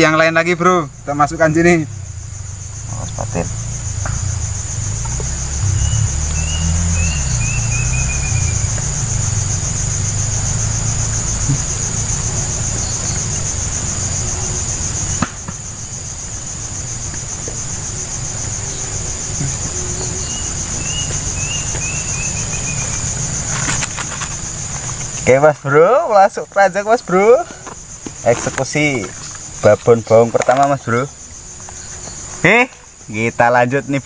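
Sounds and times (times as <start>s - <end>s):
insects chirring: 0.0s - 34.0s.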